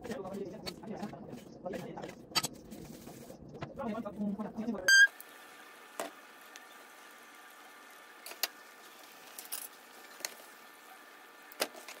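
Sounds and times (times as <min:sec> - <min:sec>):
dough sizzling in hot oil: 0:05.1 - 0:12.0.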